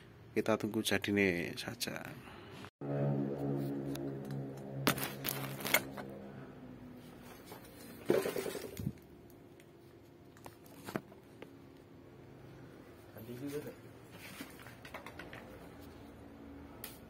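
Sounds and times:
metal scrape: 2.9s - 6.4s.

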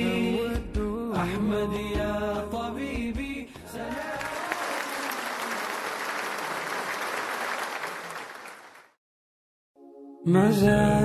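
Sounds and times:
audience applause: 3.8s - 9.0s
music track: 9.8s - 11.0s.

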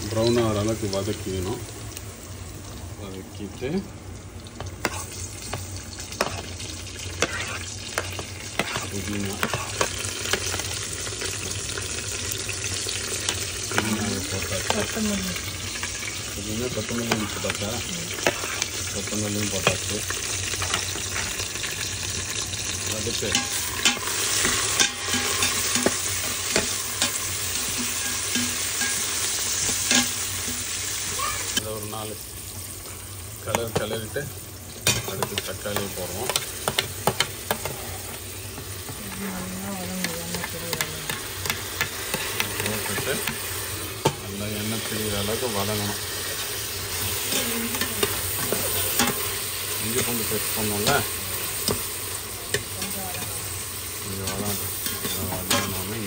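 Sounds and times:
onions sizzling in pot: 0.0s - 56.0s
metal spoon scraping pot: 7.2s - 9.8s.

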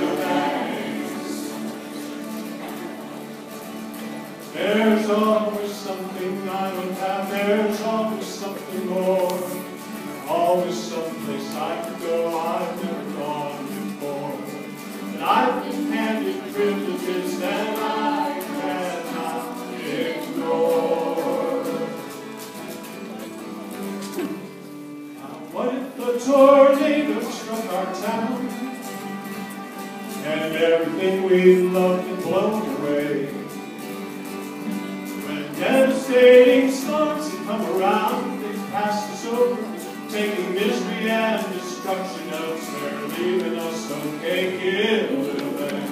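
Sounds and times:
voices singing: 0.0s - 2.3s, 4.5s - 22.8s, 25.5s - 29.2s, 35.2s - 45.9s
acoustic guitars: 0.0s - 45.9s
bowed fiddle: 0.0s - 45.9s.

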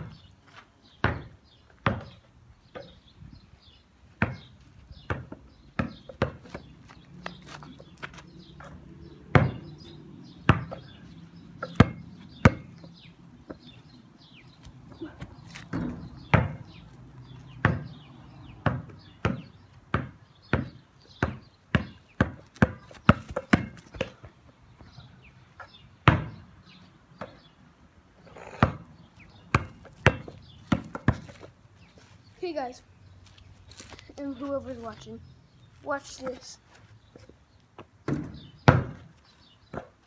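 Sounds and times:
basketball bouncing: 1.0s - 2.2s, 4.2s - 4.5s, 5.1s - 6.7s, 8.6s - 9.8s, 10.4s - 10.9s, 11.6s - 12.9s, 15.7s - 16.6s, 17.6s - 18.0s, 18.6s - 24.3s, 26.0s - 26.4s, 28.6s - 28.9s, 29.5s - 31.4s, 38.1s - 39.1s.

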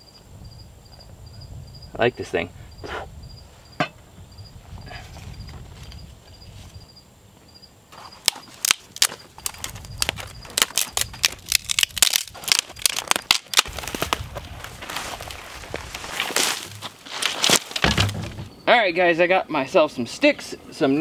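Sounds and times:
insects chirping: 0.0s - 21.0s
kindling crackling and popping: 8.0s - 18.4s.

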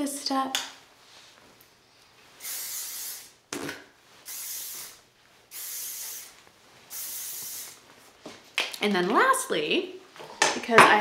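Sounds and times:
hairspray hissing bursts: 2.4s - 3.4s, 4.2s - 7.8s.

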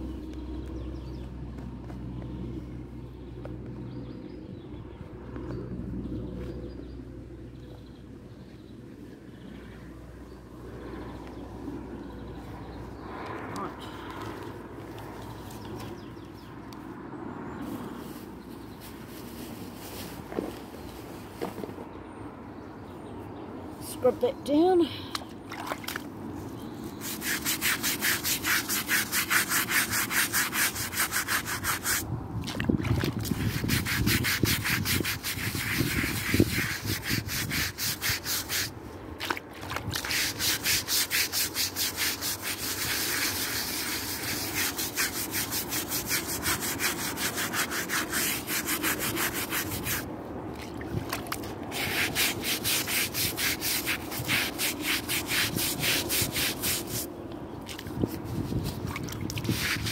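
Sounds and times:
scrub brush scrubbing metal: 27.0s - 32.0s, 33.3s - 38.7s, 40.0s - 50.1s, 51.7s - 57.1s, 59.4s - 59.9s.

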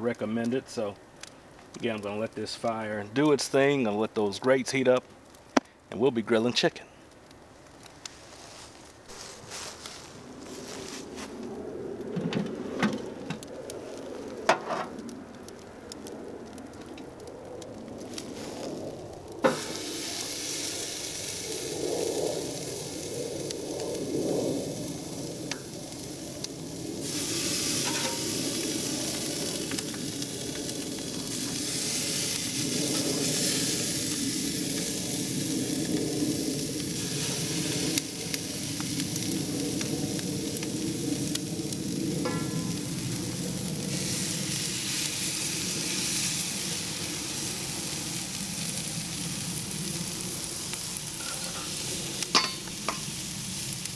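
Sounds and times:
chicken sizzling on a grill: 0.0s - 1.0s, 13.8s - 53.9s.

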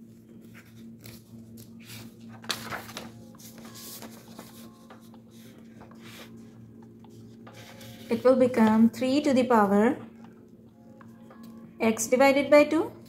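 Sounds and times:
paper rustling on a desk: 0.0s - 8.7s
faint steady hum: 0.0s - 13.0s.

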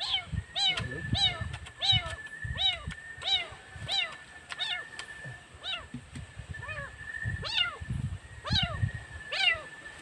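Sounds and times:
cat meowing: 5.6s - 5.9s.

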